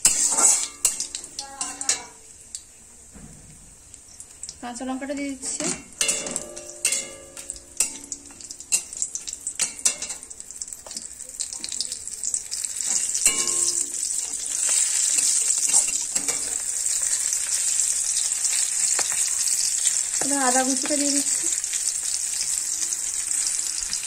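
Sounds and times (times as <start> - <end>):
metal spatula scraping pan: 0.0 - 2.2
spices sizzling in oil: 0.0 - 24.0.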